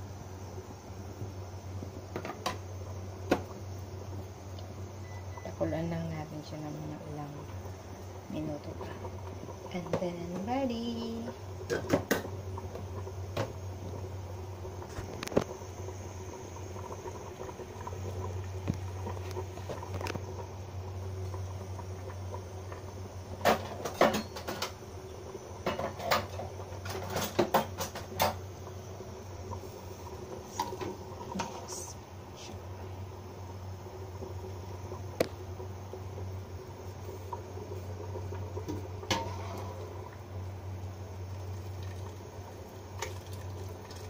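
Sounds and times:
soup boiling and bubbling: 0.0s - 44.0s
steady low hum: 0.0s - 44.0s.

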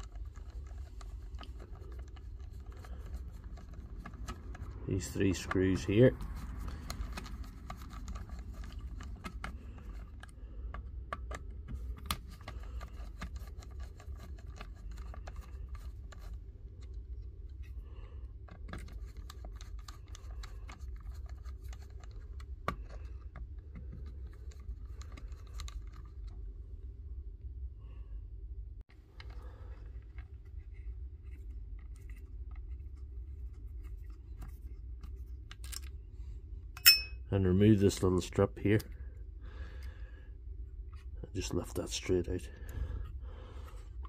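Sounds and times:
screwdriver clicks and scratches: 0.0s - 17.0s
steady low hum: 0.0s - 44.0s.

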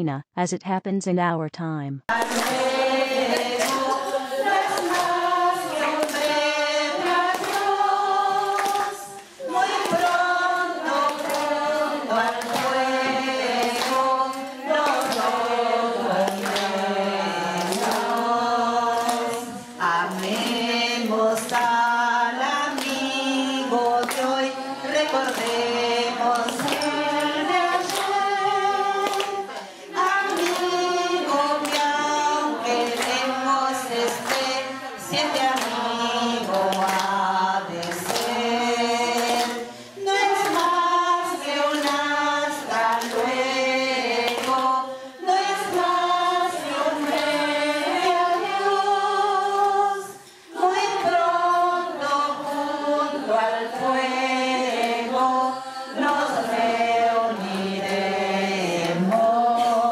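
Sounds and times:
hand claps: 2.1s - 7.8s, 8.4s - 28.4s, 29.0s - 44.8s, 45.4s - 48.6s, 58.8s - 59.9s
women singing unaccompanied: 2.1s - 59.9s.

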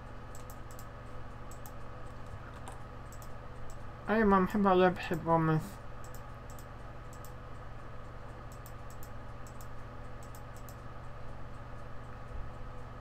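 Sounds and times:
low electrical hum: 0.0s - 13.0s
computer mouse clicks: 0.3s - 0.9s, 1.5s - 3.8s, 6.0s - 7.4s, 8.0s - 10.9s.

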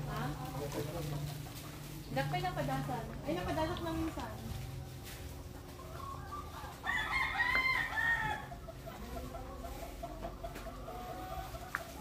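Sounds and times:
faint chicken clucking: 0.0s - 2.3s, 4.3s - 12.0s
rooster crowing: 6.8s - 8.6s.

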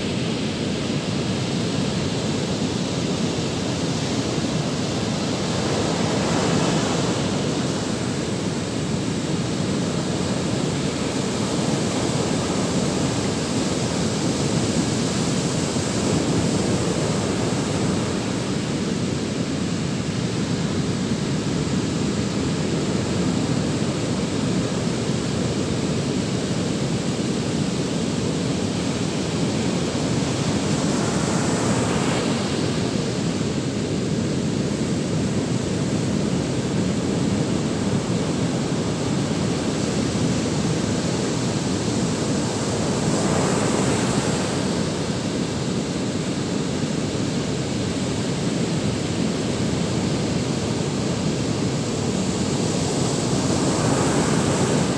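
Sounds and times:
surf breaking on beach: 2.7s - 18.6s, 29.0s - 34.3s, 35.4s - 46.5s, 47.3s - 54.9s.

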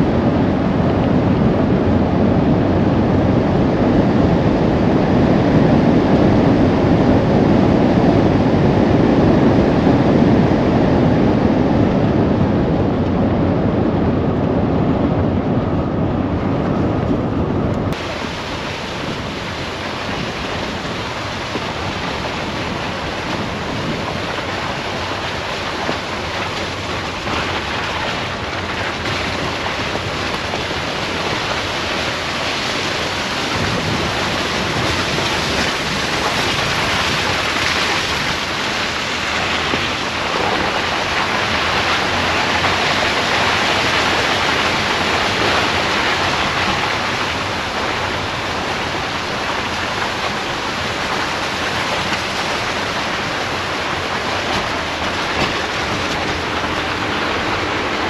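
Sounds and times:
wind over microphone: 0.0s - 58.0s
tyre noise on dirt road: 16.6s - 58.0s.

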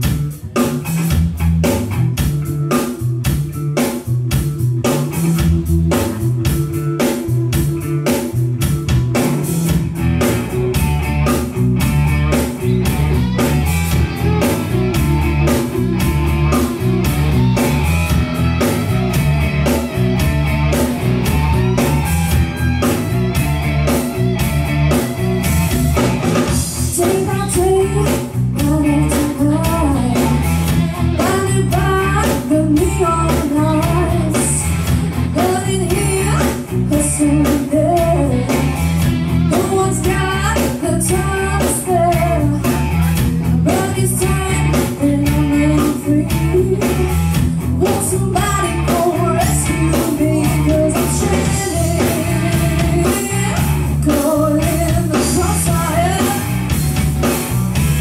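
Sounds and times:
live rock band playing: 0.0s - 58.0s
woman singing: 26.7s - 30.4s, 31.1s - 38.8s, 39.5s - 42.8s, 43.6s - 47.1s, 47.8s - 56.6s.

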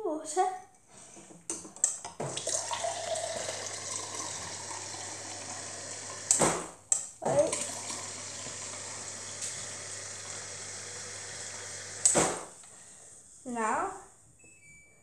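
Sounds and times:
water pouring into a glass: 2.3s - 6.4s, 7.3s - 12.1s.

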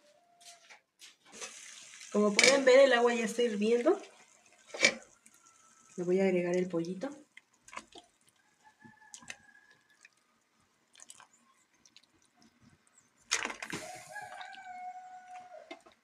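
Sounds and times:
rooster crowing: 8.5s - 10.4s, 13.8s - 15.9s.

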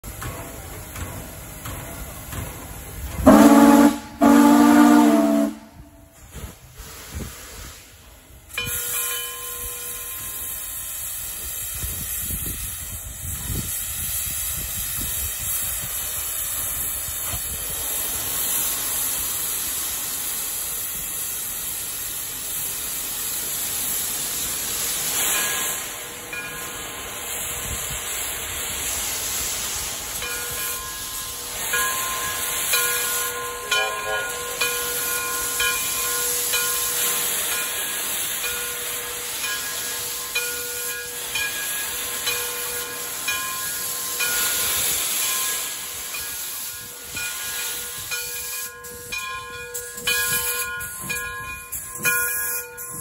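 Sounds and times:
steam hissing: 0.0s - 53.0s
steam whistle blasts: 3.2s - 6.1s.

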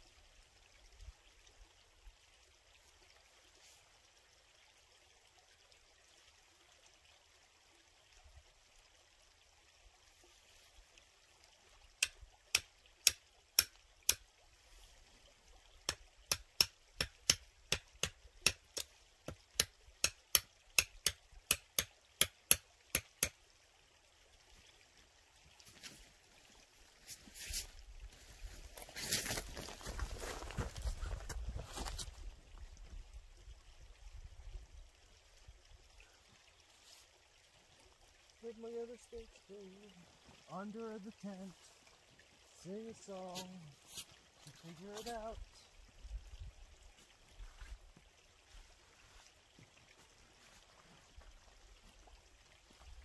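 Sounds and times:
hammer knocking tent stake: 15.9s - 23.3s.

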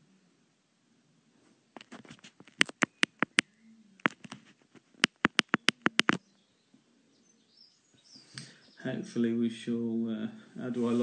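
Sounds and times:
touchscreen keyboard clicks: 1.8s - 4.4s, 5.0s - 6.2s.

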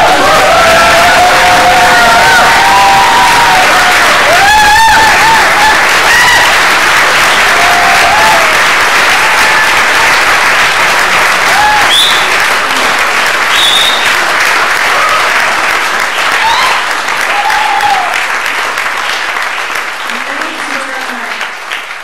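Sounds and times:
loud whoop: 0.0s - 6.7s, 7.4s - 8.6s, 11.4s - 12.3s, 16.3s - 18.2s
cheering shouts: 0.0s - 12.9s, 13.5s - 18.3s
audience applauding: 0.0s - 22.0s.

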